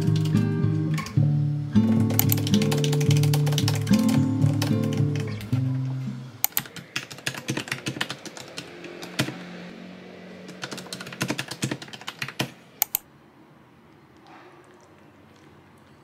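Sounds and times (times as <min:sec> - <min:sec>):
mechanical keyboard key clacks: 0:02.0 - 0:05.4.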